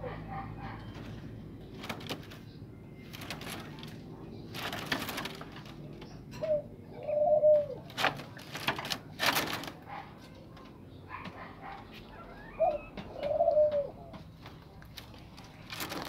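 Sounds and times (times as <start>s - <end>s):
bird cooing: 0.0s - 9.7s, 10.9s - 14.4s
rustling noise: 0.9s - 6.0s, 7.9s - 10.3s, 14.3s - 16.0s.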